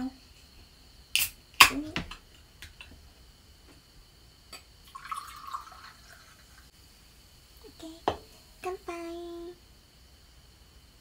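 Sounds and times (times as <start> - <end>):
drink pouring into a glass: 4.8 - 6.7.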